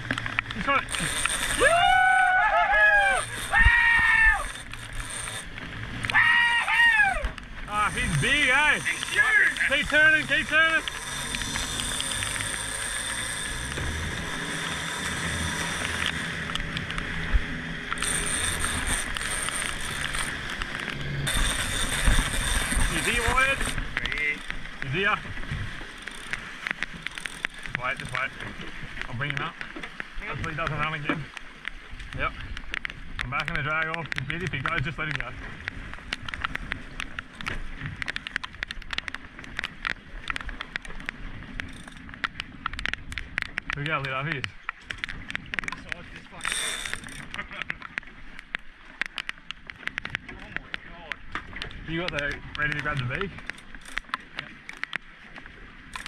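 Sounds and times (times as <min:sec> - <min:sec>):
irregular sharp ticks: 0:00.0 - 0:30.1, 0:31.3 - 0:56.0
outboard motor running: 0:00.0 - 0:56.0
water splashing along hull: 0:00.0 - 0:56.0.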